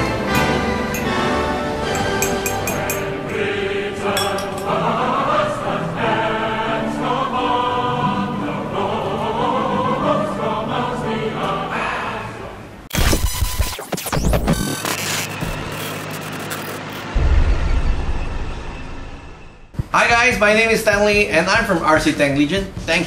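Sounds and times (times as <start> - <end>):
orchestral music with choir: 0.0 - 12.8
spoon clinking on teacup: 1.9 - 3.2, 4.1 - 4.7
burst of static noise: 12.9 - 19.7.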